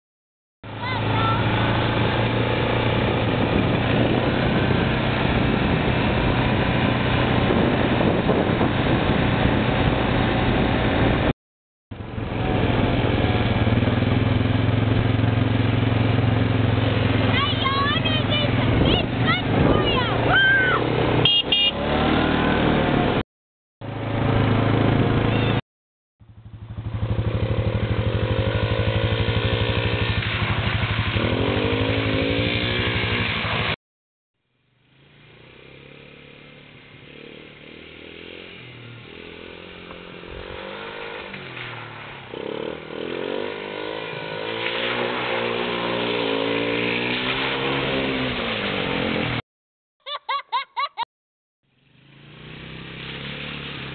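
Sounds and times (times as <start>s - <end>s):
quad engine revving: 0.6s - 11.3s, 12.0s - 23.2s, 23.8s - 25.6s, 26.4s - 33.8s, 34.8s - 49.4s, 51.8s - 53.9s.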